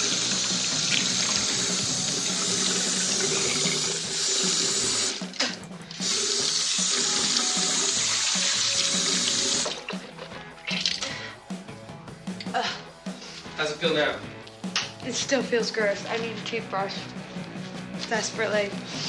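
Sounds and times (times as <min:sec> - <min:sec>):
tap water running into washbasin: 0:00.0 - 0:11.2
water splashing over hands: 0:07.3 - 0:11.1.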